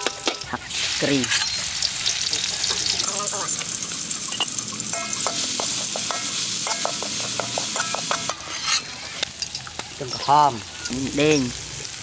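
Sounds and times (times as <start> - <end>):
metal utensil clinking on wok: 0.0 - 0.6, 4.3 - 11.0
garlic sizzling in hot oil: 0.0 - 12.0.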